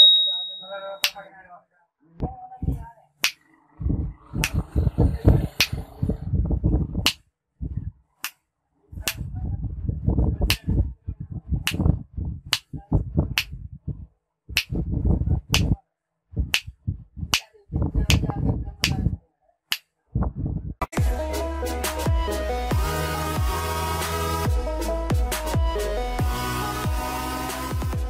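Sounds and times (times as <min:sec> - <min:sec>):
finger snaps: 0:04.4 - 0:04.6.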